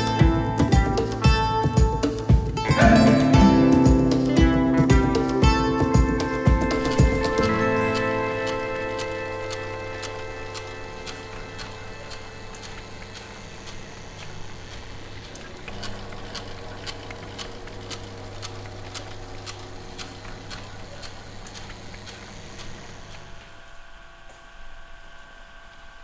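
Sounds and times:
electric hum: 1.0s - 26.0s
mechanical clicks and ticks: 6.1s - 23.4s.

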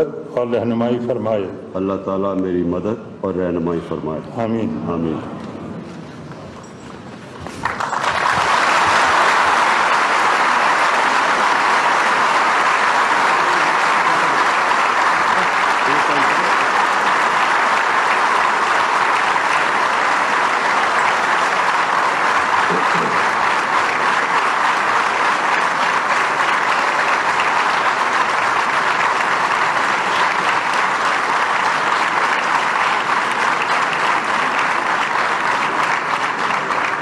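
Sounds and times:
audience applause: 7.4s - 37.0s.

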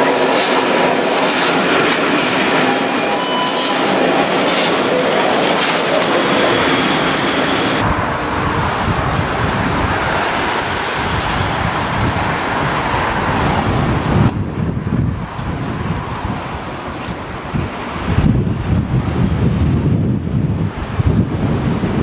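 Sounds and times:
train rolling past: 0.0s - 19.6s
wind buffeting microphone: 7.8s - 22.0s.

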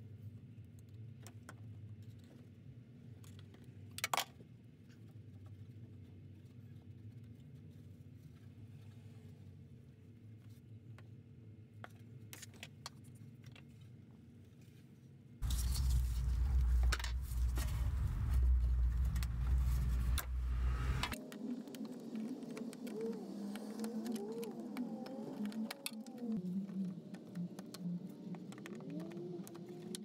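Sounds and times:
loud low rumble: 15.4s - 21.2s.

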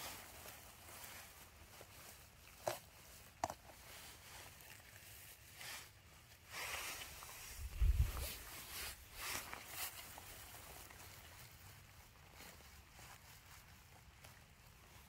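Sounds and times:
wet grass rustling: 0.0s - 15.0s
dull low thump: 7.7s - 8.4s.

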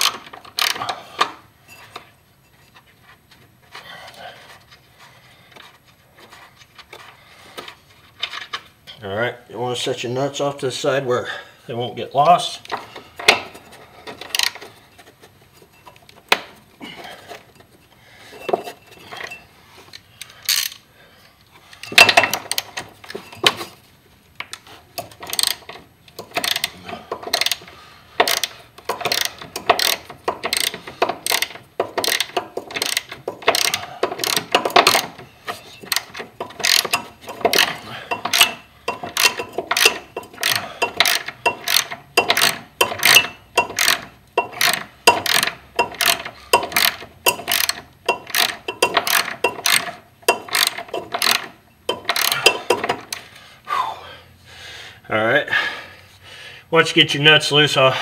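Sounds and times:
hand ratchet clicking: 0.0s - 1.4s, 12.7s - 14.7s, 18.4s - 20.8s, 21.8s - 23.6s, 24.5s - 53.3s.

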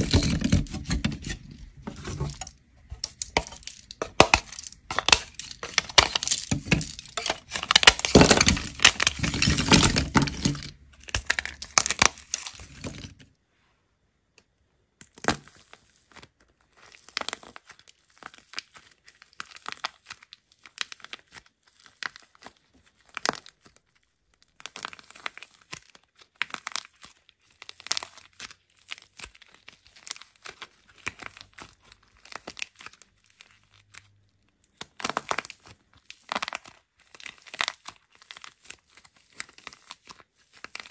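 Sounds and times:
dried clay crackling and crumbling: 0.0s - 13.3s, 15.1s - 40.9s.

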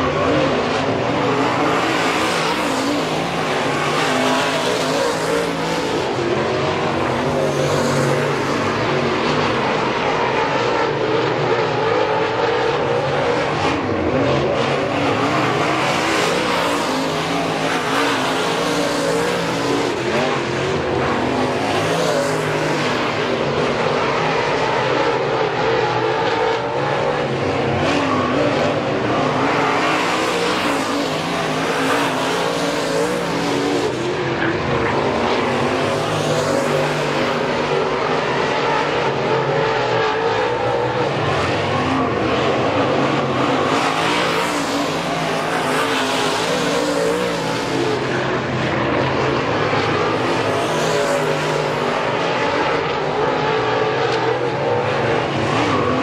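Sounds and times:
race car engines passing: 0.0s - 56.0s.

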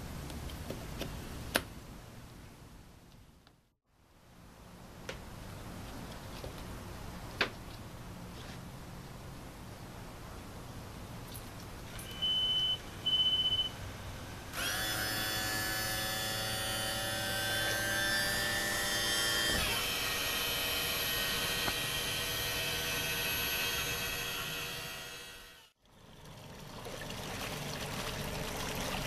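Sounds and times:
high warning beeps: 12.0s - 13.8s.

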